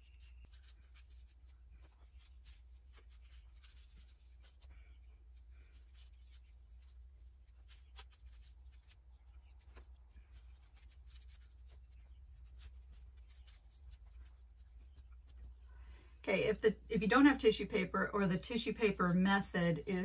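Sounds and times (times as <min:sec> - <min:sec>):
tissue paper rustling: 0:00.0 - 0:15.6
low steady hum: 0:00.0 - 0:20.0.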